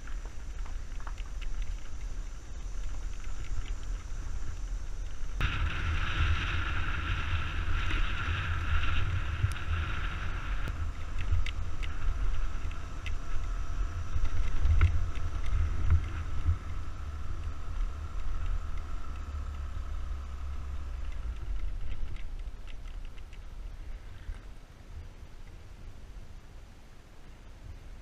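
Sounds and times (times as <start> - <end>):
stone ticks: 0.0 - 5.4, 10.6 - 19.7, 20.5 - 23.6
tyres on gravel: 0.0 - 24.7
scooter engine hum: 0.0 - 24.9
wind rumble on microphone: 0.0 - 28.0.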